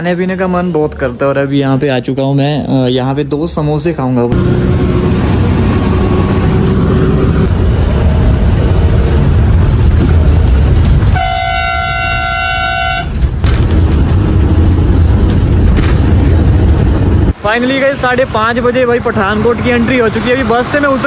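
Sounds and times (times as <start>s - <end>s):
bus engine and road rumble: 0.0s - 21.0s
horn blast: 11.1s - 13.2s.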